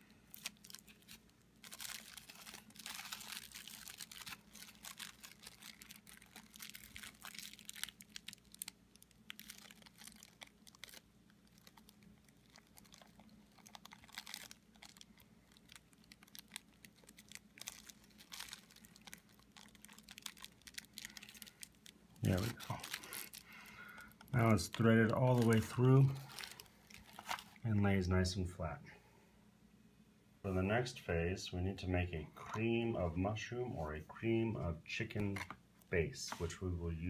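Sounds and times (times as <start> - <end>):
bubble wrap crinkling: 0.0 - 27.7.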